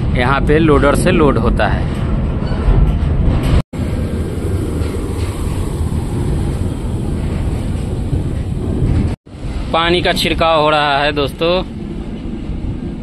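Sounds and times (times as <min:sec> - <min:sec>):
wind on microphone: 0:01.8 - 0:10.4
water tanker truck spraying water: 0:03.8 - 0:08.3.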